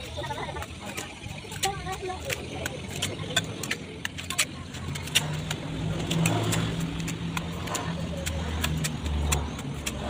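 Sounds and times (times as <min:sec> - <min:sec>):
trowel clicking and scraping: 0:00.0 - 0:10.0.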